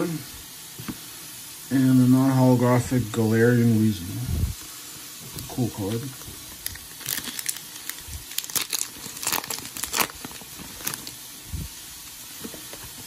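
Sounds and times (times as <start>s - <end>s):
foil wrapper tearing and crinkling: 6.6s - 11.3s.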